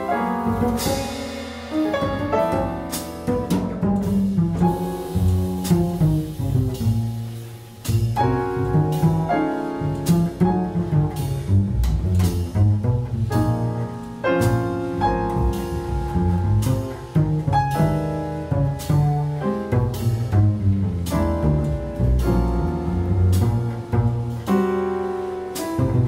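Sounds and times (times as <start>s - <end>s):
jazz piano chords: 0.0s - 26.0s
plucked double bass: 0.0s - 26.0s
cymbal and drum strikes: 0.4s - 9.4s, 14.2s - 20.4s.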